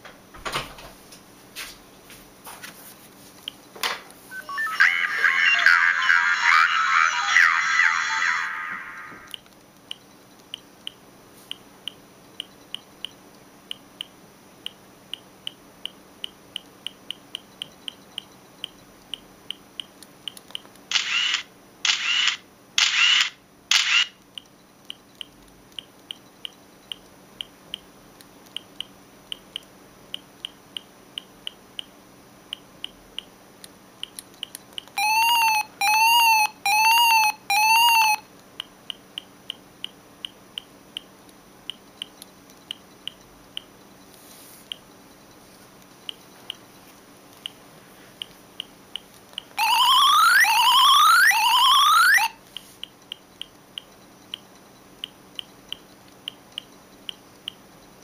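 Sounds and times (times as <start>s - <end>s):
short loud beeps: 4.3s - 5.2s
rising and falling chirps: 4.3s - 5.6s, 35.0s - 38.2s, 49.6s - 52.4s.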